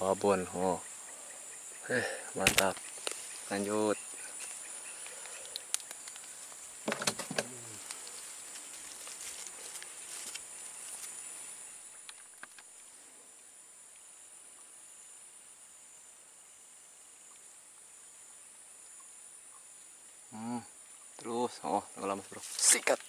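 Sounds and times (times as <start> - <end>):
insects chorus: 0.0 - 23.0
handling clicks and rustles: 2.4 - 3.3.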